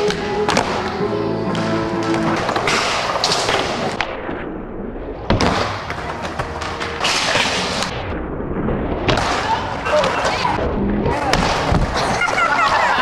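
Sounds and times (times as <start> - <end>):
music: 0.0 - 4.0, 5.3 - 7.9.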